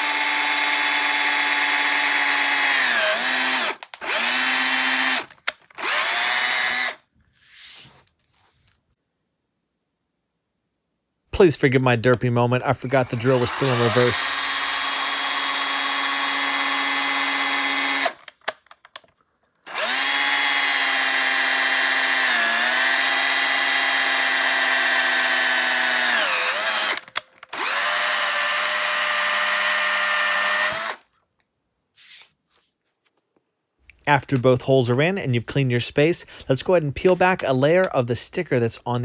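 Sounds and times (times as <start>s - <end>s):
electric drill boring through plastic: 0.0s - 7.1s, 12.8s - 18.5s, 19.7s - 31.1s.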